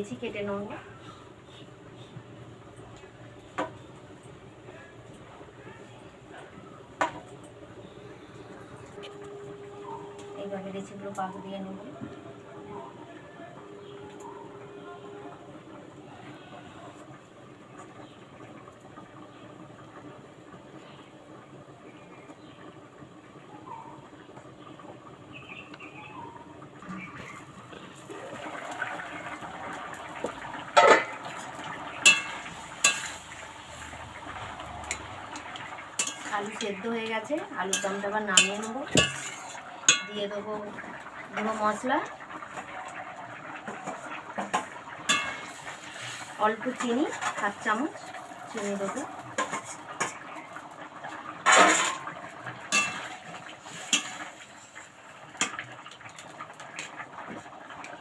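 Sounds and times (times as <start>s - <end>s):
curry simmering: 0.0s - 58.0s
metal ladle clanking on pot: 30.7s - 31.3s, 32.0s - 33.2s, 34.8s - 36.7s, 37.6s - 40.2s, 43.8s - 45.7s, 51.4s - 54.2s
spatula scraping wok: 30.8s - 40.3s, 43.7s - 50.3s, 51.4s - 55.6s
spatula clinking on wok: 32.0s - 33.2s, 36.0s - 36.6s, 37.6s - 40.2s, 45.1s - 45.6s, 52.7s - 53.1s.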